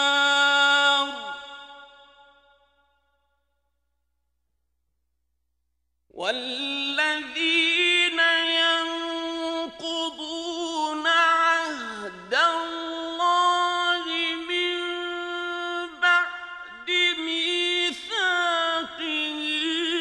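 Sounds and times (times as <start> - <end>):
man reciting melodically: 0.0 - 2.2, 6.1 - 20.0.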